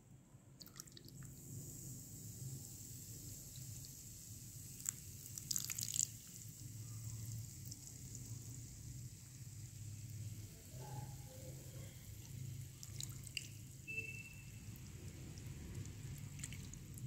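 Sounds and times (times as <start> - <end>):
water trickling onto clay: 3.4 - 8.9, 12.2 - 17.0.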